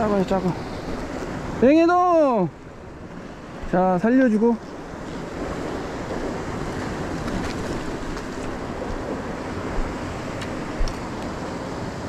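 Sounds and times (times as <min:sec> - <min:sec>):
surf washing over rocks: 0:00.0 - 0:12.0
wind on microphone: 0:04.7 - 0:12.0.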